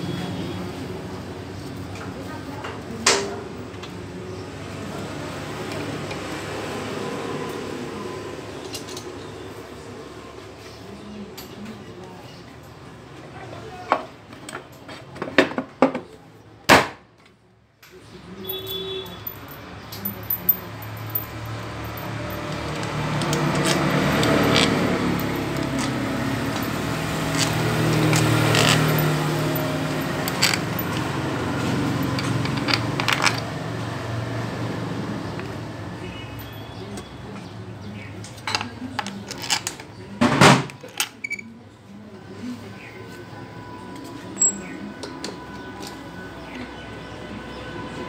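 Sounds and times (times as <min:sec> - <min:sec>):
hand tools clinking on metal: 0:18.4 - 0:33.5, 0:44.4 - 0:46.0
background voices: 0:19.8 - 0:40.4.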